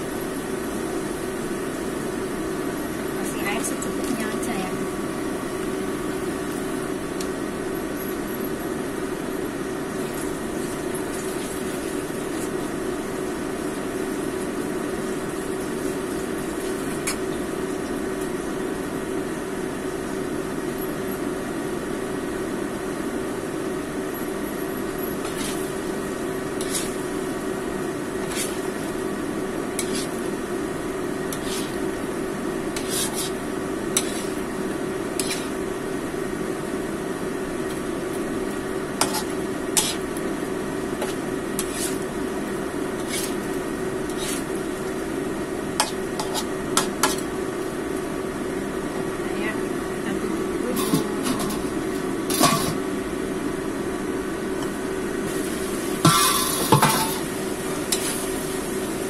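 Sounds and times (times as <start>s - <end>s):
steady hum: 0.0s - 59.0s
metal spatula scraping wok: 25.2s - 25.9s, 26.5s - 27.1s, 28.1s - 29.0s, 29.7s - 30.3s, 31.3s - 31.9s, 32.7s - 34.5s, 35.1s - 35.6s, 39.0s - 40.1s, 41.0s - 42.1s, 43.0s - 43.5s, 44.1s - 44.6s, 45.8s - 47.3s, 50.8s - 52.8s, 56.1s - 57.3s.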